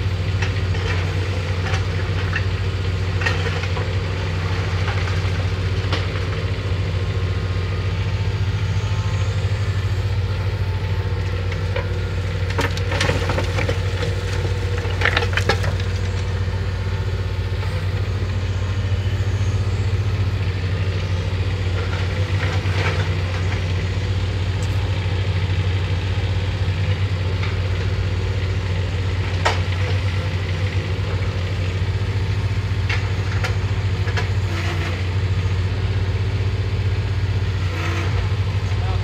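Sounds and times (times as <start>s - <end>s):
diesel engine hum: 0.0s - 39.0s
concrete rubble clattering: 11.6s - 16.4s.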